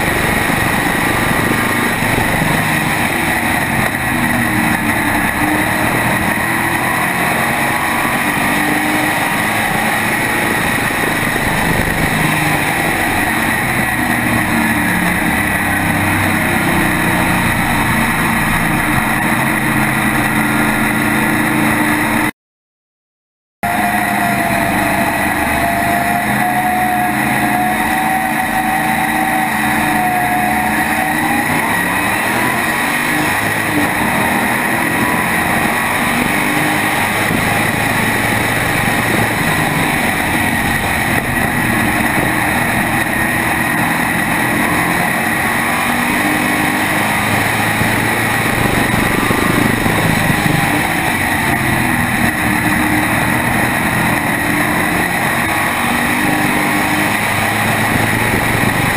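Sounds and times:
race car engine: 0:00.0 - 0:22.3, 0:23.6 - 0:58.9.

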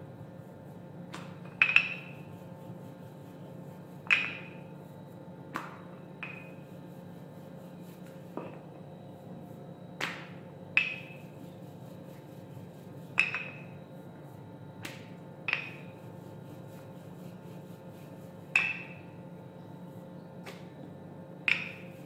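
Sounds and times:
rolling pin clinks on counter: 0:01.5 - 0:02.2.

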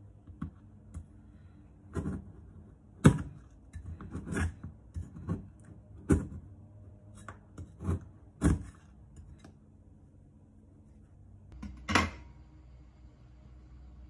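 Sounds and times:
knife chopping on cutting board: 0:07.6 - 0:08.8.

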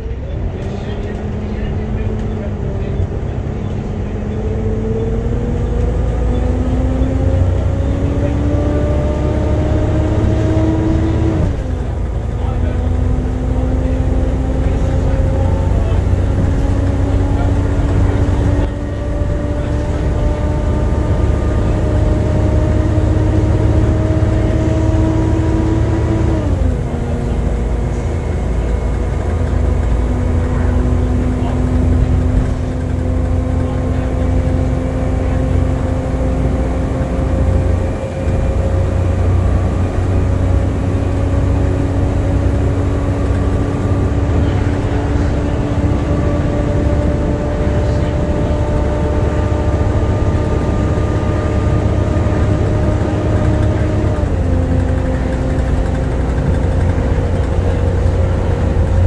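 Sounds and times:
bus diesel engine rumble and whine: 0:00.0 - 0:59.0.

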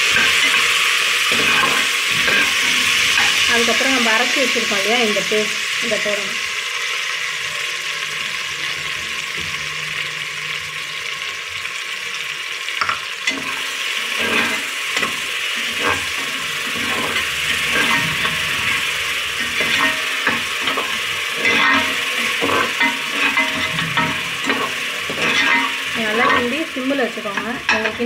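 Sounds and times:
steel ladle scraping pot: 0:00.0 - 0:03.5, 0:13.3 - 0:28.0
paste sizzling in hot oil: 0:00.0 - 0:28.0.

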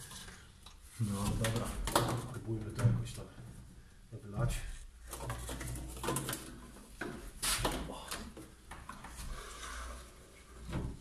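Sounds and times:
knocks and plastic rustles: 0:01.0 - 0:03.2, 0:04.4 - 0:09.4.

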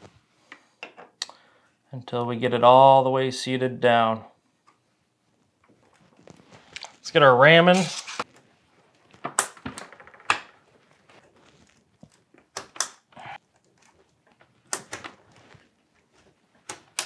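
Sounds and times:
soft handling noise: 0:04.5 - 0:09.2, 0:10.6 - 0:12.5, 0:13.4 - 0:16.9.

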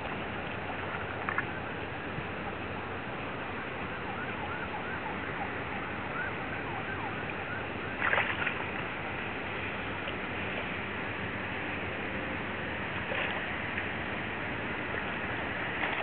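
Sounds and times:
water lapping at shore: 0:00.0 - 0:16.0
wind: 0:00.0 - 0:16.0
splash in water: 0:07.0 - 0:08.8, 0:13.0 - 0:13.9, 0:15.7 - 0:16.0.

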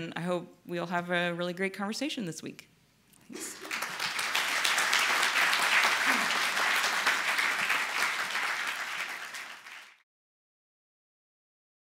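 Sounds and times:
audience applauding: 0:03.3 - 0:10.0.

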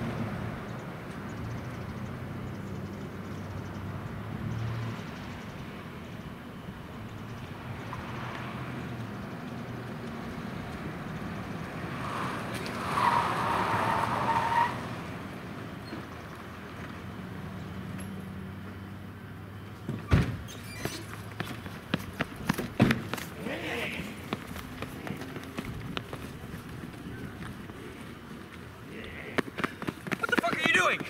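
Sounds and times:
tyres squealing: 0:12.0 - 0:14.9, 0:20.4 - 0:21.6, 0:28.8 - 0:31.0.

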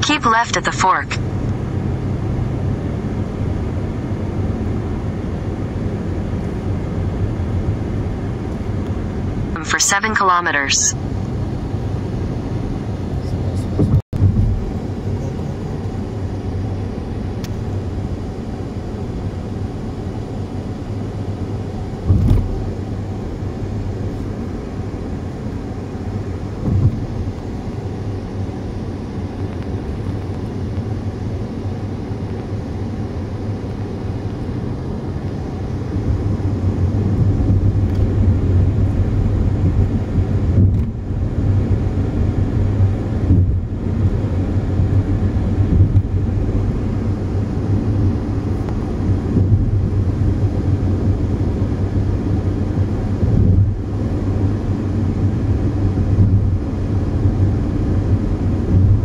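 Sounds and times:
car tyres and engine rumble: 0:01.2 - 0:10.2, 0:11.0 - 0:59.0.

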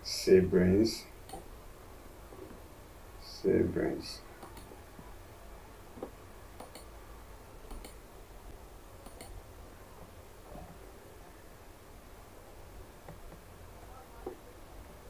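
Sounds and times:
low room hum: 0:00.0 - 0:15.0
computer clicks: 0:04.4 - 0:04.7, 0:06.6 - 0:06.9, 0:07.7 - 0:08.0, 0:09.0 - 0:09.4.

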